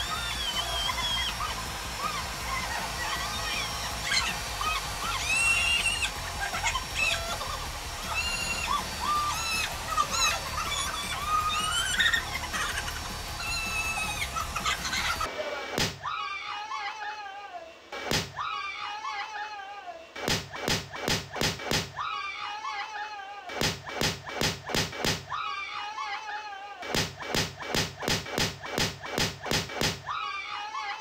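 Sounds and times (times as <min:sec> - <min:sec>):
person screaming: 0:00.1 - 0:14.4, 0:22.0 - 0:23.6, 0:25.3 - 0:26.8, 0:30.0 - 0:31.0.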